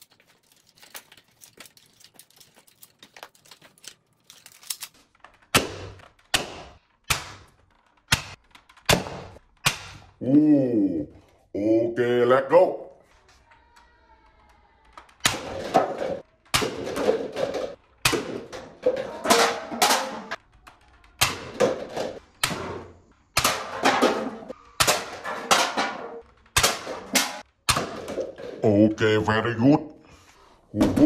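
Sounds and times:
darts knocking over cups and cans: 5.4 - 10.2, 15.0 - 20.4, 21.0 - 28.7.

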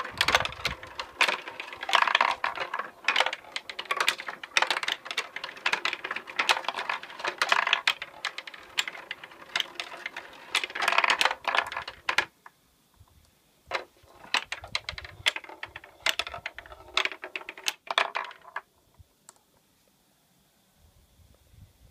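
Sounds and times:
steel marbles clicking on wooden tracks: 0.0 - 12.4, 13.7 - 18.7.

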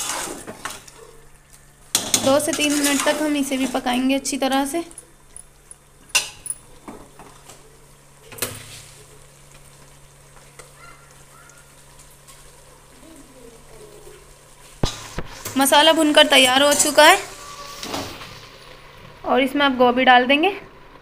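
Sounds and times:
metal spatula scraping a pot: 0.0 - 0.9, 2.0 - 3.8
faint sizzle of frying meat: 0.0 - 21.0.

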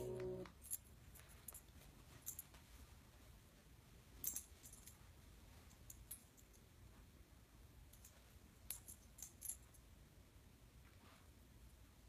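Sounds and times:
room hum: 0.0 - 12.0
light clicks and jingles: 0.2 - 7.1, 7.8 - 10.0.

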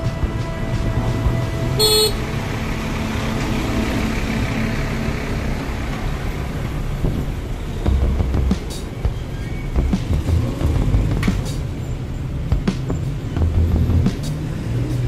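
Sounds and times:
city street traffic: 0.0 - 15.0
motorcycle engine and road rumble: 0.0 - 15.0
vehicle horn toot: 1.6 - 2.5.

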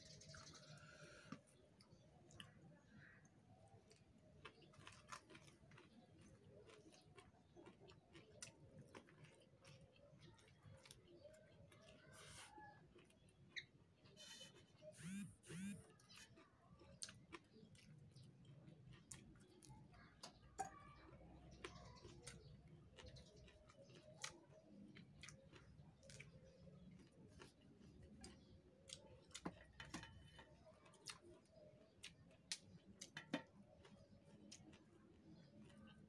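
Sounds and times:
chewing clicks and smacks: 0.0 - 36.0.

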